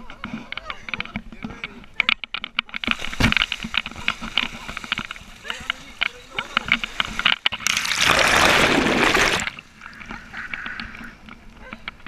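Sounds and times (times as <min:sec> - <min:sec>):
sea water rushing and splashing: 0:02.8 - 0:09.8.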